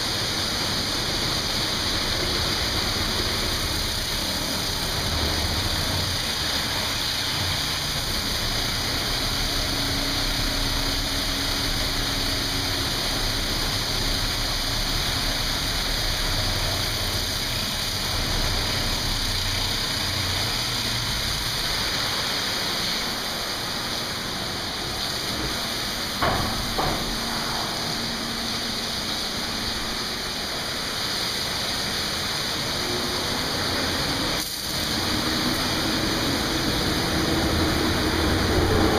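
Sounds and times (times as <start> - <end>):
car wash machinery running: 0.0 - 38.9
water jets spraying: 0.0 - 38.9
brief knocks: 26.2 - 27.8.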